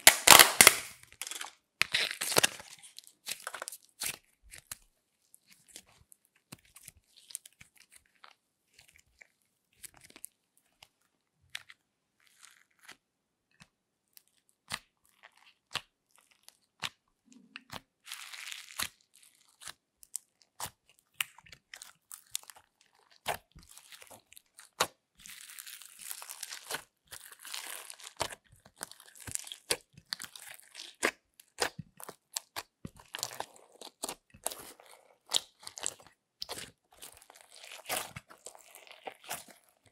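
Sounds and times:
slime squished by hand: 0.0 - 4.8, 14.2 - 39.9.

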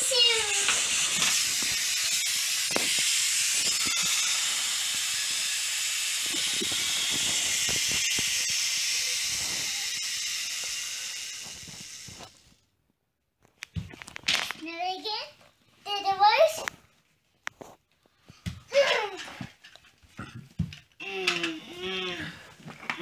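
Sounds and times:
steady hiss: 0.0 - 12.6.

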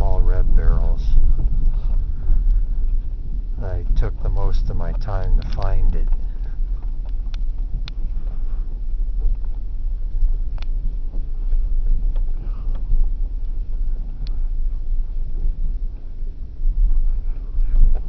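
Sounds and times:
vehicle rumbling on dirt road: 0.0 - 18.0
clicks and rattles in cabin: 4.0 - 8.2.

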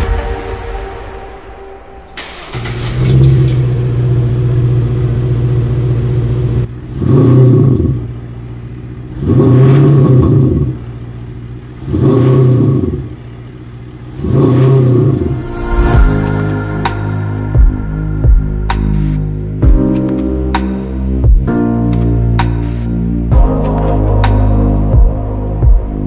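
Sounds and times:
engine starting and idling: 2.1 - 5.3
engine revving: 2.2 - 20.8.

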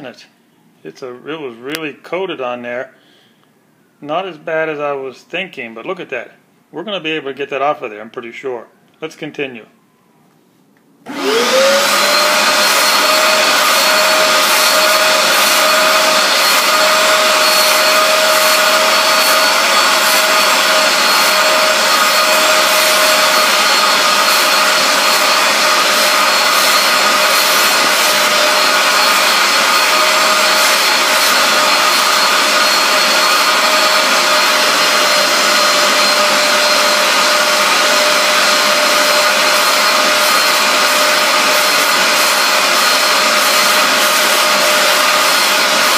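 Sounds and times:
carpet cleaner suction whine: 11.0 - 45.9.

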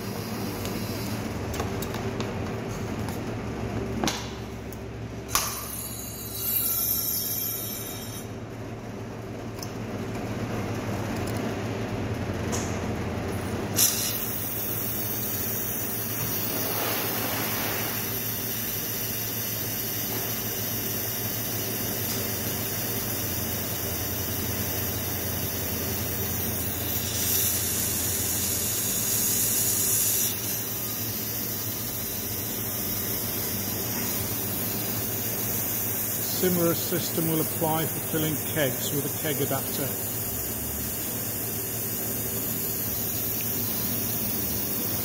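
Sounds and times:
low machine hum: 0.0 - 45.0
hiss of carbonated water filling: 13.8 - 45.0.

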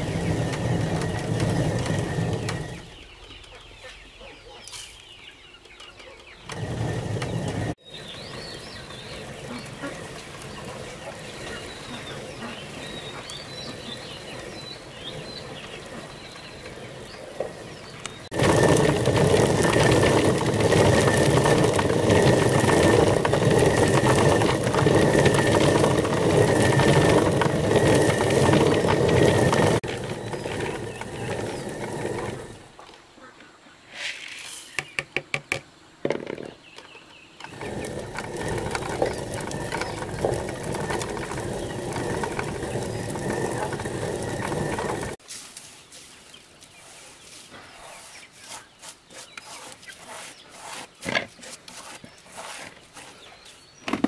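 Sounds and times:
stone mill grinding: 0.0 - 3.0, 6.4 - 32.7, 37.4 - 45.2, 48.4 - 54.0.

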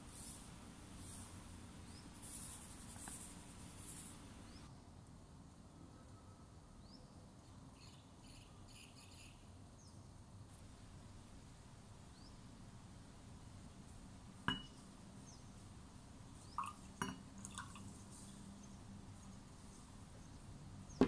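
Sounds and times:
glass bowl clinking on glass: 14.5 - 14.8, 16.6 - 17.8.

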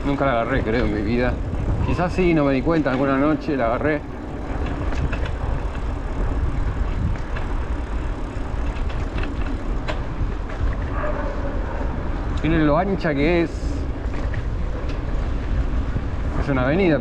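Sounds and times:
tyres rolling on asphalt: 0.0 - 17.0
wind on microphone: 0.0 - 17.0
sharp clicks or rattles: 4.4 - 6.3, 6.9 - 10.8.

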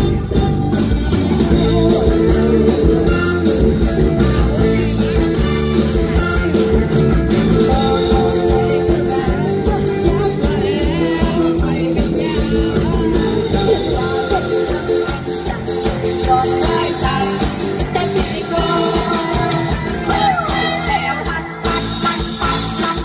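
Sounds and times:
drums: 0.0 - 23.0
electric guitars: 0.0 - 23.0
keyboard: 0.0 - 23.0
women singing: 0.1 - 3.8, 7.6 - 21.9.

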